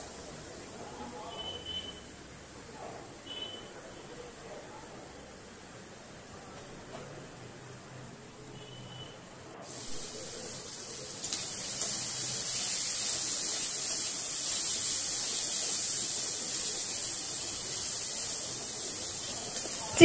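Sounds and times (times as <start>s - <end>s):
chicken sizzling in hot oil: 9.6s - 20.0s.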